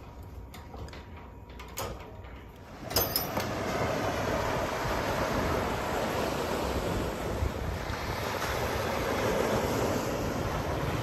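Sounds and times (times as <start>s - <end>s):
wind rumbling on microphone: 0.0s - 11.0s
surf washing onto rocky shore: 2.7s - 11.0s.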